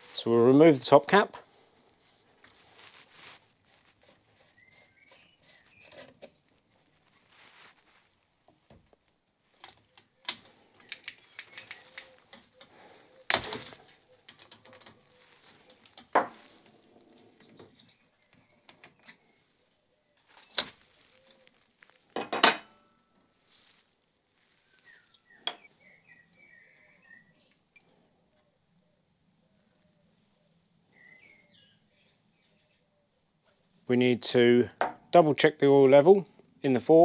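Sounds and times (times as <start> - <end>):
faint bird chirps: 4.0 - 6.4, 9.8 - 15.9, 17.2 - 22.1, 24.4 - 33.8.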